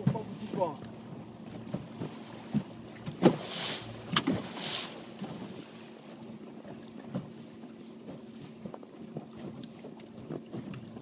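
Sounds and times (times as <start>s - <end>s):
hull and rigging creaking: 0.0s - 11.0s
short hissing swishes: 3.3s - 5.1s.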